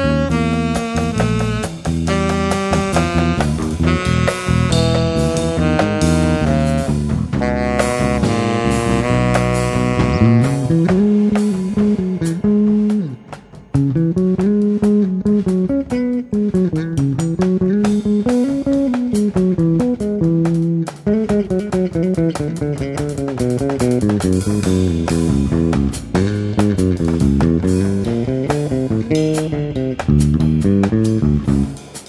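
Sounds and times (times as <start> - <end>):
saxophone phrase: 0.0 - 12.6
electric bass sliding melody: 0.0 - 32.0.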